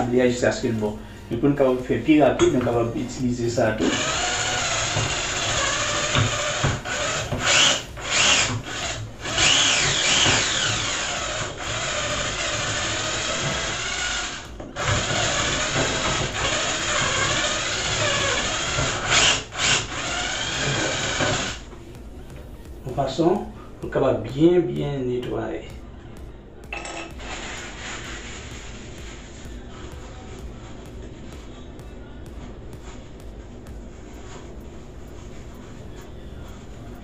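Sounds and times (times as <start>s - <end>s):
drill grinding metal: 2.6s - 21.7s.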